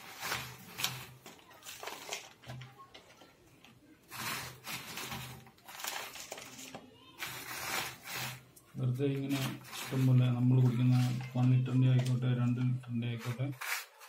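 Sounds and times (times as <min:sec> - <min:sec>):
plastic rustling: 0:00.0 - 0:03.4, 0:04.0 - 0:14.0
gritty soil scraping: 0:04.1 - 0:06.5, 0:07.2 - 0:08.4, 0:09.2 - 0:11.4, 0:13.1 - 0:14.0.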